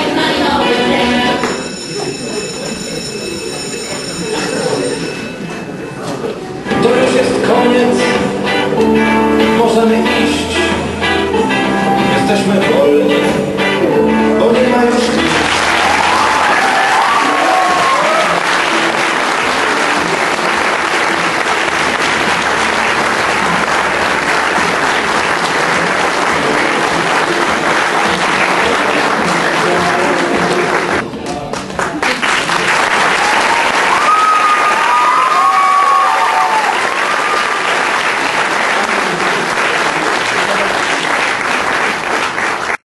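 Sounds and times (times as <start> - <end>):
audience applauding: 15.0 - 42.8
audience cheering: 15.2 - 31.0, 32.8 - 41.6.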